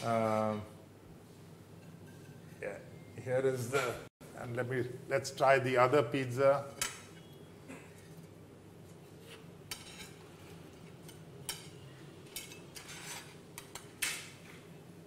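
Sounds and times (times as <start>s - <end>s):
utensil scraping plate: 12.4s - 13.4s.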